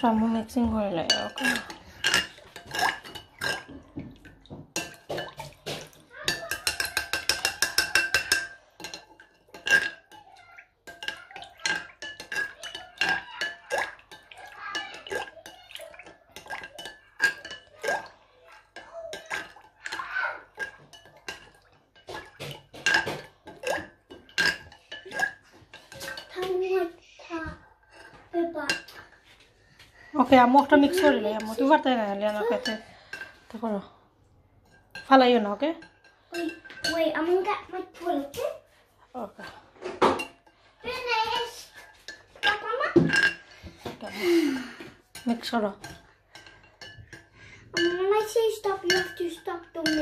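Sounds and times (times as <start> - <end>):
metal spoon clinking in glass bowl: 0.0 - 26.4, 30.5 - 33.4, 34.6 - 37.4, 41.3 - 43.5, 45.1 - 50.0
liquid sloshing: 0.0 - 34.0, 34.6 - 50.0.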